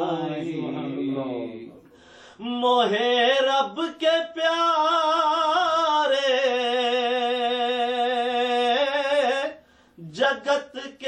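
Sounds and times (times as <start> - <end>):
man singing unaccompanied: 2.4 - 11.0.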